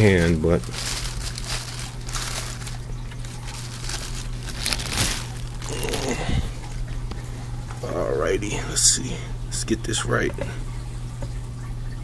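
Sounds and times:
styrofoam and plastic rustling: 0:00.0 - 0:06.8
steady low hum: 0:00.0 - 0:12.0.

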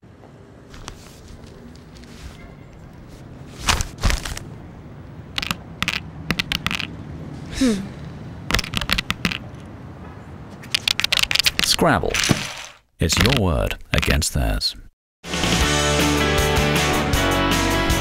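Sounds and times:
paper rustling hits: 0:03.5 - 0:04.5, 0:11.2 - 0:13.4
game tiles clicking down: 0:05.4 - 0:06.9, 0:08.5 - 0:09.4, 0:12.5 - 0:13.4.

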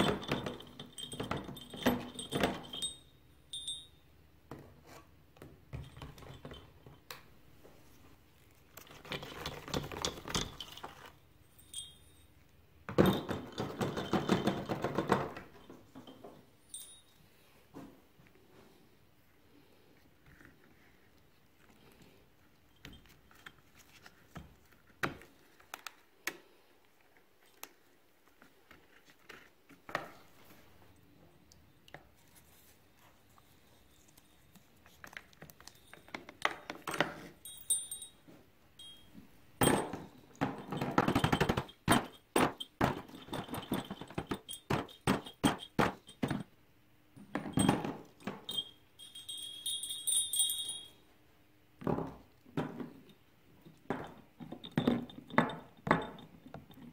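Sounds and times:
rustling and scraping: 0:22.8 - 0:26.0
small metal parts clinking: 0:48.4 - 0:51.0.

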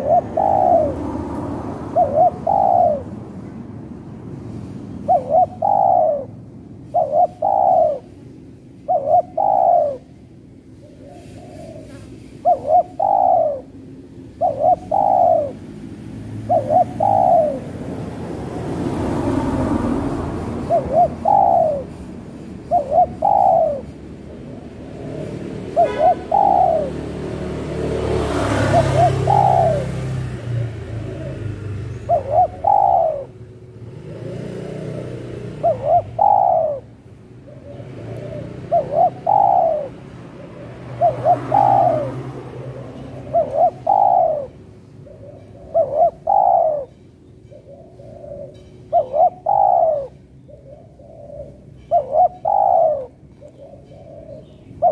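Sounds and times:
dove cooing: 0:00.0 - 0:03.3, 0:05.0 - 0:54.9
passing traffic rumble: 0:00.0 - 0:54.9.

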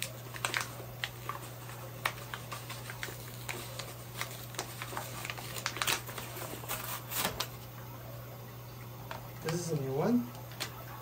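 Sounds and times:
plastic packaging crinkling: 0:00.0 - 0:07.7.

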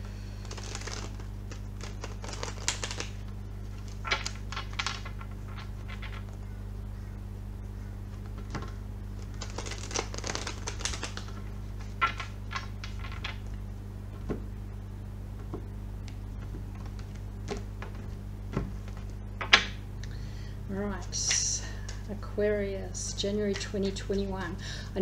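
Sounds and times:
steady low hum: 0:00.0 - 0:25.0
cards being shuffled: 0:00.4 - 0:06.4, 0:08.1 - 0:14.5, 0:15.4 - 0:19.8.

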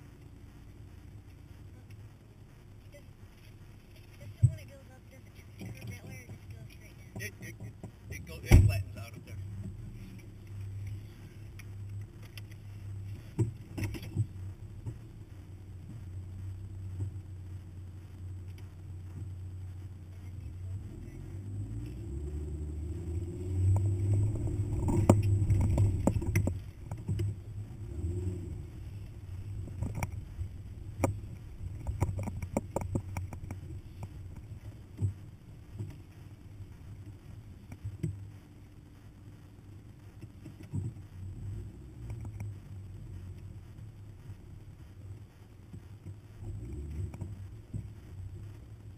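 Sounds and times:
truck engine rumbling under load: 0:00.0 - 0:48.9
knocks and thumps over rough ground: 0:02.9 - 0:17.4, 0:22.8 - 0:38.6, 0:40.1 - 0:48.7.

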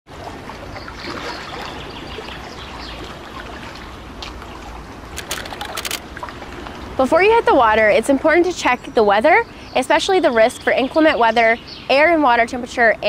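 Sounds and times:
water trickling and babbling: 0:00.1 - 0:13.0
short sharp clicks: 0:05.2 - 0:06.0.

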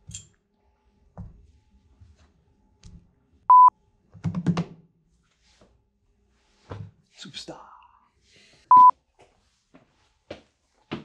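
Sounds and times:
short electronic beep: 0:03.5 - 0:03.7, 0:08.7 - 0:08.9.

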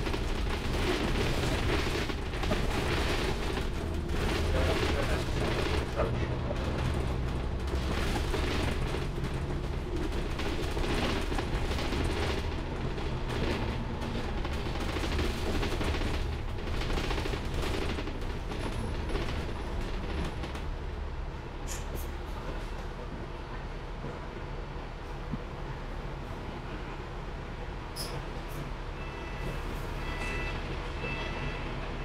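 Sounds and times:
bodywork rattling and creaking: 0:00.0 - 0:20.7
bus engine drone: 0:00.0 - 0:32.0.

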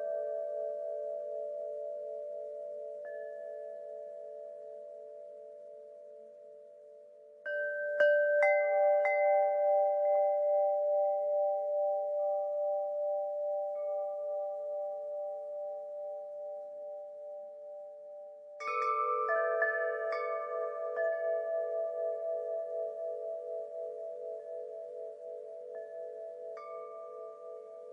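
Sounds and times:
wind chimes ringing: 0:07.4 - 0:16.5, 0:18.6 - 0:27.9.

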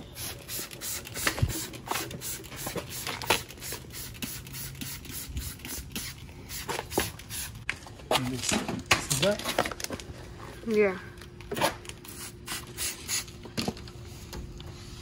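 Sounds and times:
spray bottle spritzes: 0:00.2 - 0:07.6, 0:12.1 - 0:13.3.

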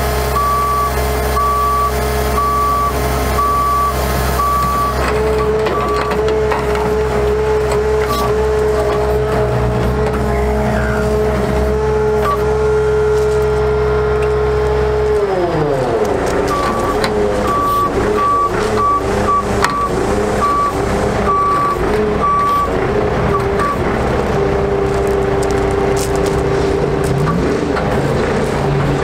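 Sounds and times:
diesel engine running: 0:00.0 - 0:29.0
hydraulic whine: 0:00.0 - 0:29.0
high alarm beeping: 0:00.4 - 0:06.0, 0:16.5 - 0:22.7.

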